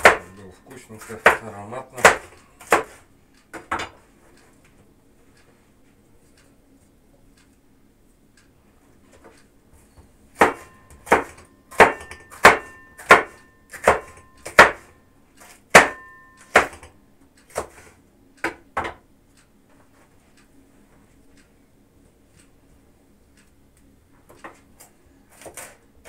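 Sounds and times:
knife chopping on wooden board: 0.0 - 0.4, 1.0 - 4.0, 10.4 - 16.9, 17.5 - 19.0, 25.3 - 25.8.

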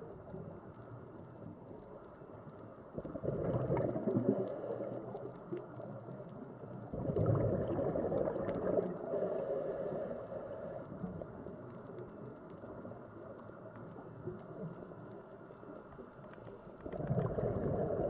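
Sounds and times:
faint underwater hiss: 1.9 - 18.0
diver's bubbles gurgling underwater: 3.0 - 5.2, 6.8 - 9.0, 16.8 - 18.0.

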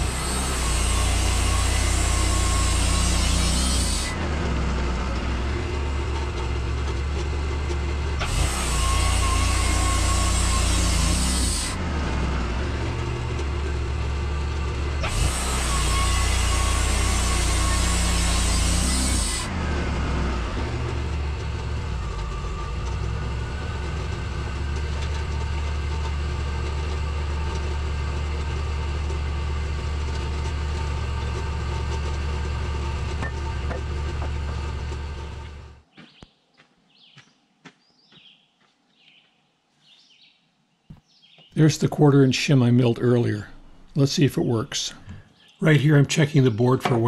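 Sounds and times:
sawmill engine running: 0.0 - 35.9, 41.5 - 47.0
saw blade hissing in wood: 8.2 - 11.8, 15.0 - 19.5
faint birdsong: 35.9 - 47.0.

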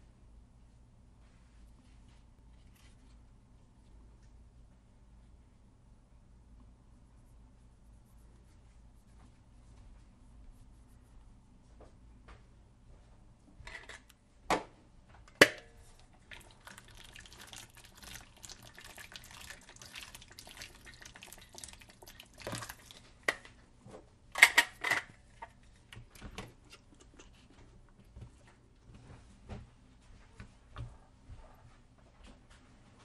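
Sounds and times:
tap water running into bowl: 16.2 - 23.0.

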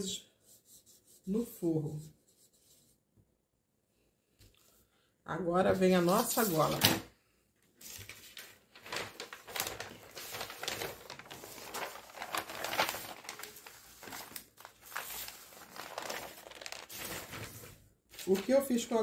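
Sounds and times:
paper rustling and crinkling: 5.8 - 7.1, 7.7 - 19.0.

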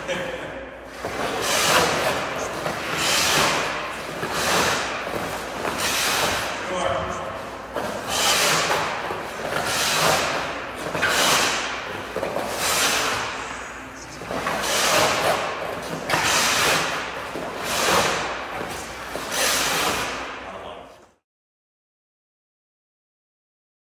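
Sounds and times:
skate blades scraping ice: 1.0 - 6.6, 7.3 - 20.2.

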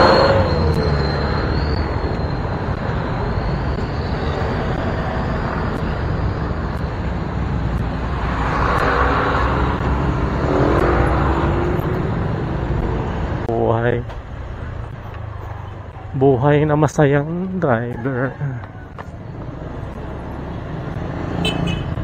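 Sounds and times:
engine revving: 0.0 - 1.6, 7.7 - 13.4, 19.4 - 22.0
low road rumble: 0.0 - 22.0.

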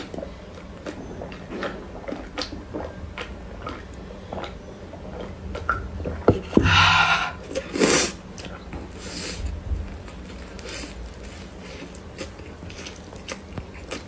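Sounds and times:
chewing bread: 0.0 - 6.3, 7.4 - 14.0
slurping from a bowl: 7.3 - 8.2.

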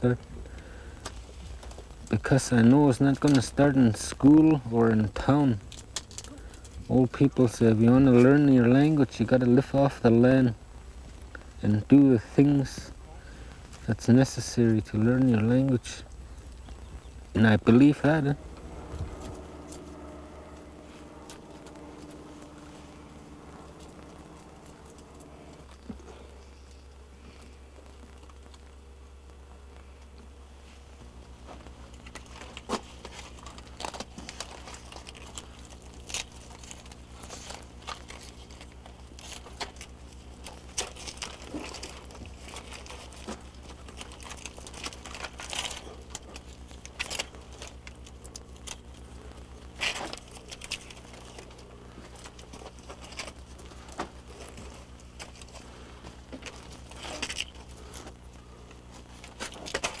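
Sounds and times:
low electrical hum: 0.0 - 60.0
crackles and clicks: 5.0 - 9.3, 10.5 - 11.6, 12.8 - 14.0, 14.8 - 60.0.

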